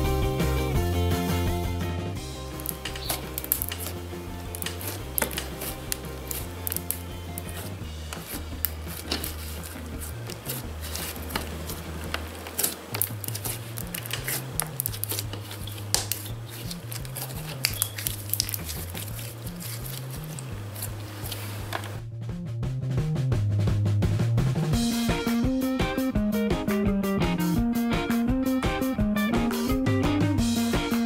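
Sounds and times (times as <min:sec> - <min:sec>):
background music with bass: 0:00.0 - 0:31.0
slime squelching: 0:02.4 - 0:22.0.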